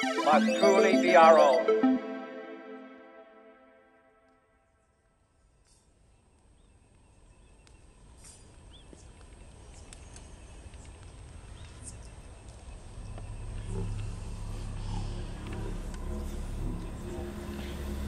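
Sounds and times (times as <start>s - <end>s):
low rumble: 12.7s - 18.0s.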